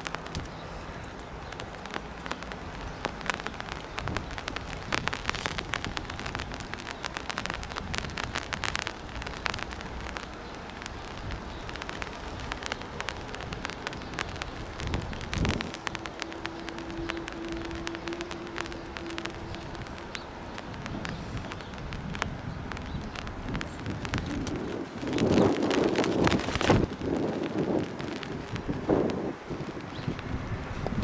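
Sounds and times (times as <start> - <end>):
rain falling: 0.0 - 31.0
raindrops ticking near microphone: 0.0 - 31.0.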